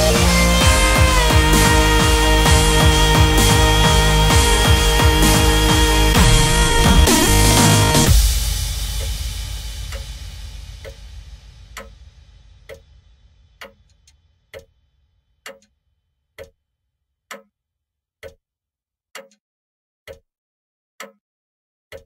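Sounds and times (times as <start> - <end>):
clock-like ticking: 0.0 - 8.3
electronic music: 0.0 - 10.2.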